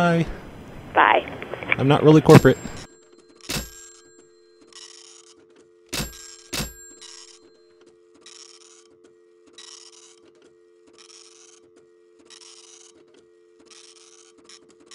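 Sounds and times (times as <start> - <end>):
low phone line hum: 0.0 - 14.9
phone hang-up clicks: 1.6 - 10.4.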